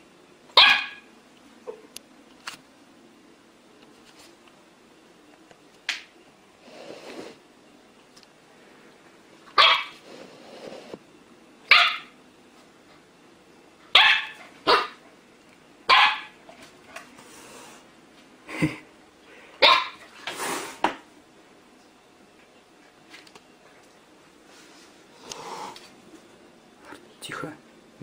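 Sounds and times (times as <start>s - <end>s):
puppy barking high yappy barks: 0.6s - 1.1s, 9.6s - 10.0s, 11.7s - 12.1s, 13.9s - 15.0s, 15.9s - 16.4s, 19.6s - 20.0s.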